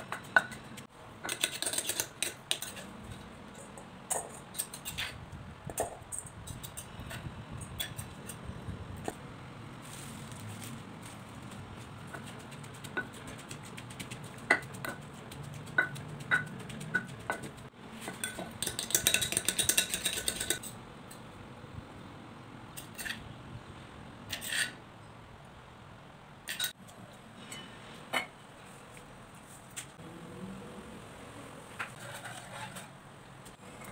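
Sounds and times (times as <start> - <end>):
wooden pestle knocking in mortar: 12.1 - 20.6
kitchenware clinking: 15.7 - 20.8, 26.4 - 26.8
rapid scraping and rattling: 31.9 - 33.0.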